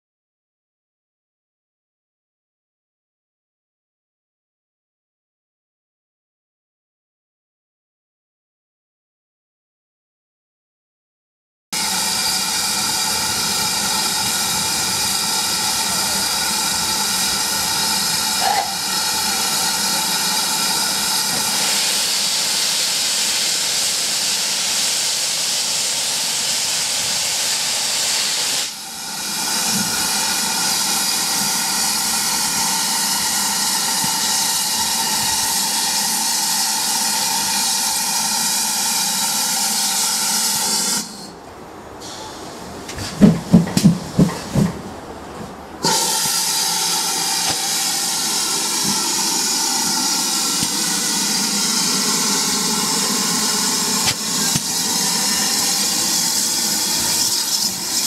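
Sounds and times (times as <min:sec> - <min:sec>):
steam locomotive hissing steam: 0:11.8 - 0:41.4, 0:42.0 - 0:44.7, 0:45.8 - 0:58.0.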